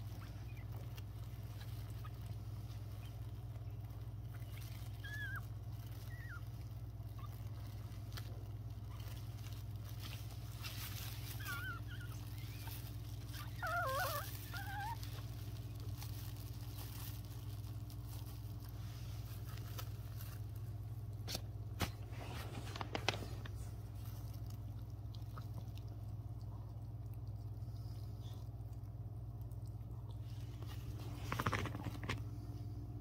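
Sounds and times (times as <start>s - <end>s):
puppies squealing: 0.0s - 18.6s
steady low hum: 0.0s - 33.0s.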